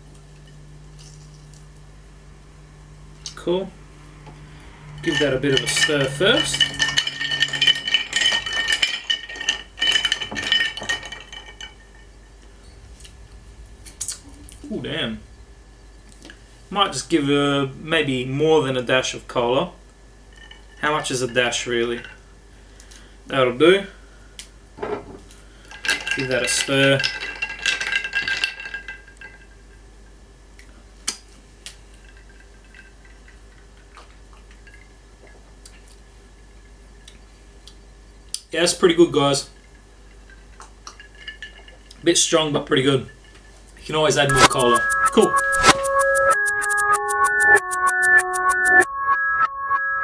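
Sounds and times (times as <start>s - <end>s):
ice cubes clinking in glass: 5.0s - 12.2s, 25.7s - 29.6s, 40.1s - 41.9s
glass clink: 5.0s - 12.4s.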